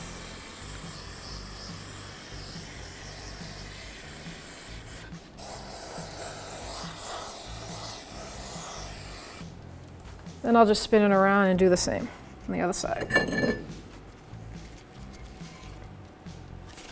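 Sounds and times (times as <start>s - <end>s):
aerosol spray hissing: 0.0s - 9.4s.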